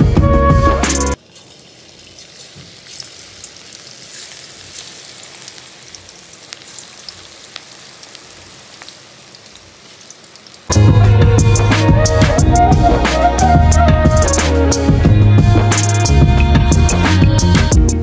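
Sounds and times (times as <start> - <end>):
food frying in hot oil: 1.2 - 11.7.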